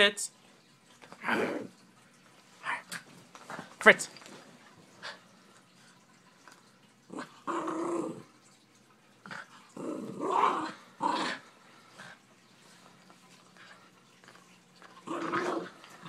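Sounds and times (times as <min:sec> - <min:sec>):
dog growling: 0:01.2 - 0:01.8, 0:07.1 - 0:08.3, 0:09.3 - 0:12.1, 0:15.0 - 0:16.0.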